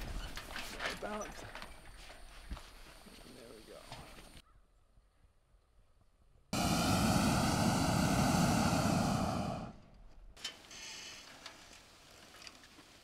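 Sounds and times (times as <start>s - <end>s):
propane burner firing: 6.6s - 9.8s.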